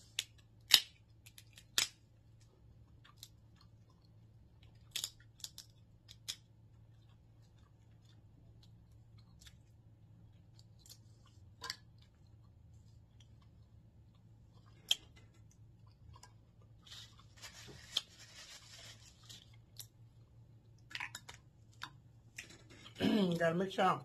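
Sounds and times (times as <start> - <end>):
crab shells cracking: 0.0 - 3.8, 4.6 - 7.3.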